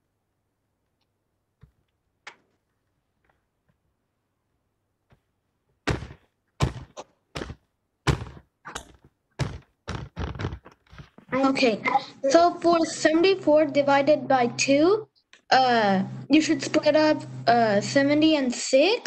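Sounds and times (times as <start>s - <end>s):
loud thuds on a desk: 5.8s - 8.5s, 9.4s - 10.6s.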